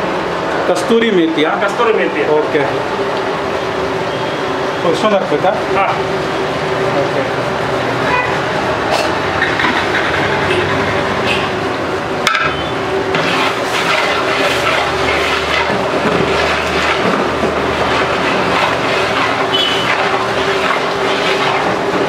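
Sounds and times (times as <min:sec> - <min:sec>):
pot boiling over burner flame: 0:11.0 - 0:22.0.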